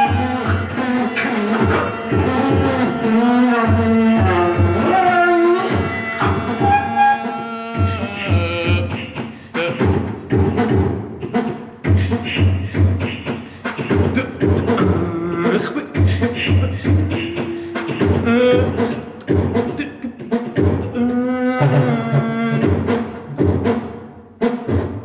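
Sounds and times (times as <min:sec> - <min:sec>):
low drum hits: 0:00.0 - 0:06.8
bending vocal tones: 0:00.0 - 0:23.4.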